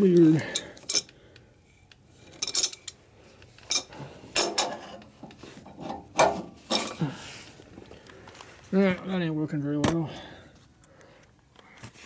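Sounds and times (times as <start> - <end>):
wrench clinking on metal bolt: 2.4 - 3.0.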